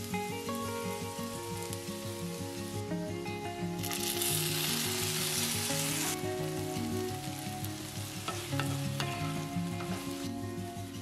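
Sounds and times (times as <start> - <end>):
potatoes sizzling in a skillet: 0.0 - 11.0
soft background music: 0.0 - 11.0.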